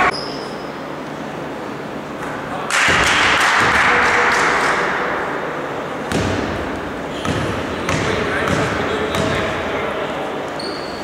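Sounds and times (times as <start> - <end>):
basketball striking rim: 6.1 - 9.4
ball bouncing on gym floor: 6.1 - 9.5.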